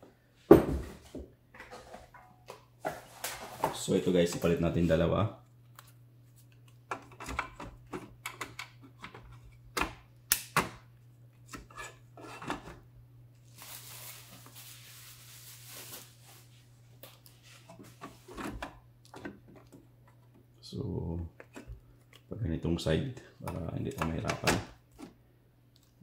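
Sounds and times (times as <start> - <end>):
rustling: 13.4 - 18.3.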